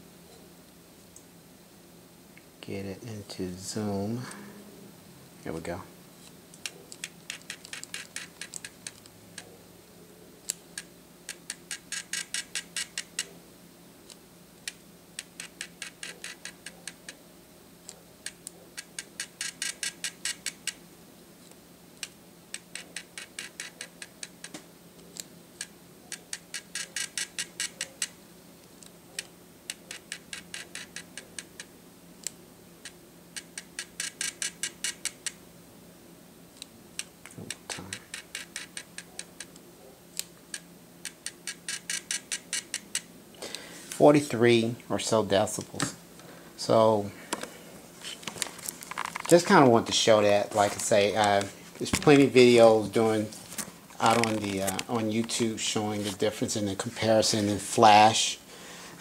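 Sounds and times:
motorised zoom head ticking: 10.5 - 13.3.

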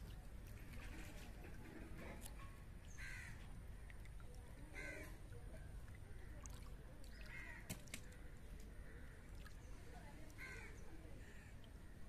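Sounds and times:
crow cawing: 3.0 - 3.4, 4.8 - 5.1, 7.3 - 7.7, 10.4 - 11.5.

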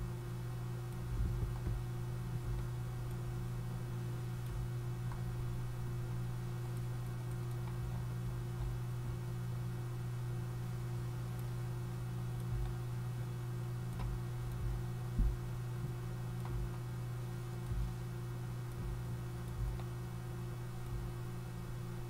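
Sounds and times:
low electrical hum: 0.0 - 22.0
computer mouse clicks: 6.6 - 7.9.

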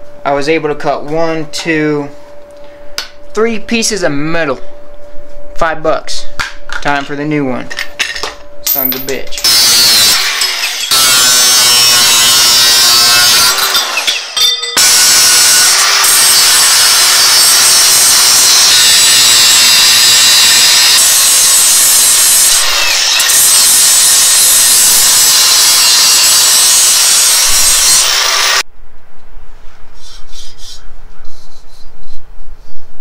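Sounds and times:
handling and knocking sounds: 7.7 - 9.4
angle grinder cutting steel: 8.9 - 28.6.

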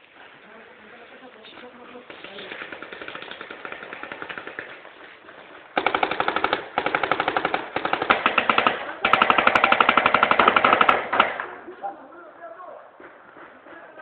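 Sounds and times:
paintball markers firing: 2.1 - 4.9, 5.7 - 11.6.

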